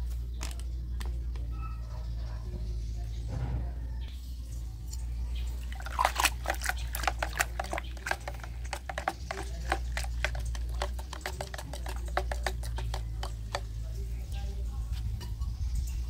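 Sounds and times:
water being stirred: 4.9s - 14.2s
stick knocking plastic bucket: 5.7s - 13.8s.

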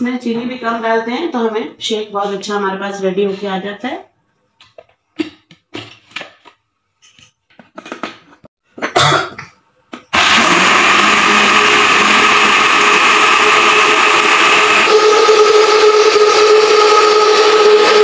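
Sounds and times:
blender motor running: 10.1s - 18.0s.

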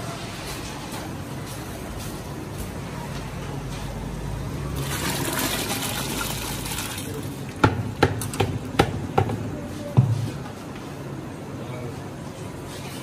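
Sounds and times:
water pouring into a pot: 4.8s - 7.6s.

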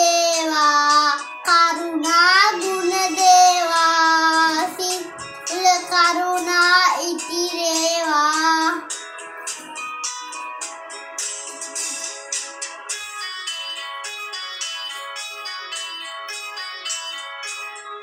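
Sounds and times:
child singing: 0.0s - 8.9s.

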